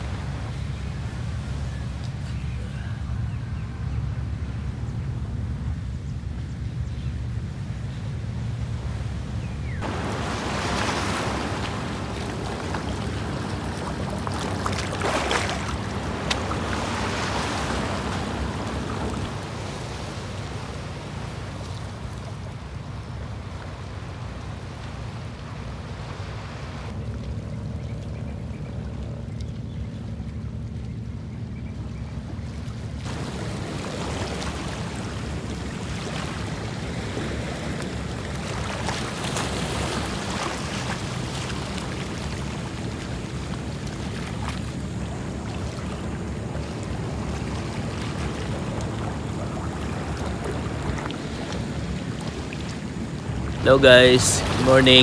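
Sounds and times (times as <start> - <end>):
waves lapping over rocks: 9.8 - 27.2, 32.5 - 55.0.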